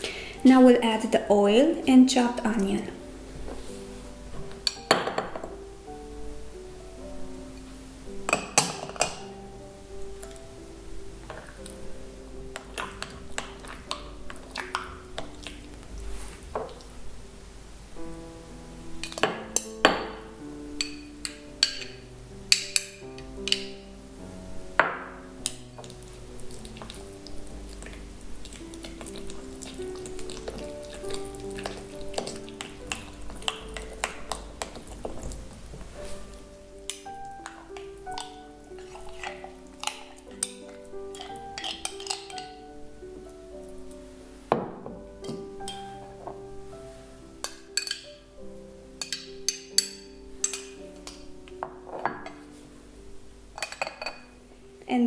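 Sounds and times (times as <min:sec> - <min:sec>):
soft background music: 0:00.0 - 0:55.0
spoon stirring wet mixture: 0:11.2 - 0:17.0, 0:19.0 - 0:23.9, 0:24.6 - 0:43.4, 0:45.1 - 0:48.2, 0:49.0 - 0:52.6, 0:53.6 - 0:54.3.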